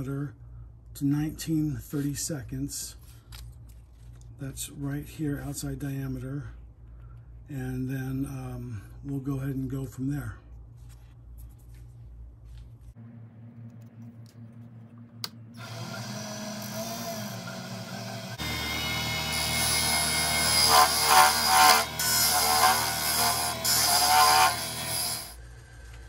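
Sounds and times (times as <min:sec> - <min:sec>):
lathe motor hum: 0:15.6 - 0:25.3
turning tool scraping: 0:15.6 - 0:25.4.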